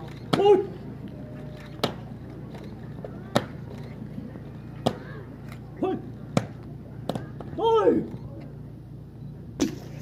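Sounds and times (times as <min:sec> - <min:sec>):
outdoor background noise: 0:00.0 - 0:10.0
man shouting: 0:00.4 - 0:00.8, 0:05.8 - 0:06.1, 0:07.6 - 0:08.1.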